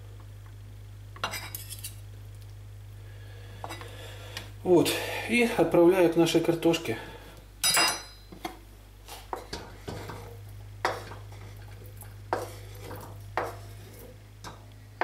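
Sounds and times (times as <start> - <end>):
ringing metal clink: 7.6 - 8.3.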